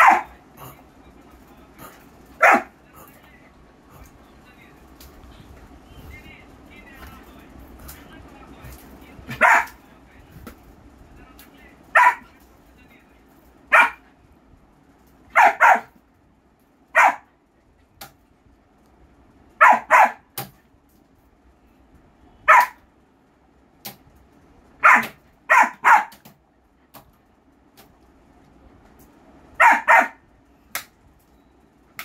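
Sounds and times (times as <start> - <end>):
puppy barking: 0.0 - 0.7, 2.4 - 2.8, 9.3 - 9.8, 12.0 - 12.4, 13.7 - 14.0, 15.3 - 16.0, 17.0 - 17.3, 19.6 - 20.3, 22.4 - 22.8, 24.8 - 26.3, 29.6 - 30.2.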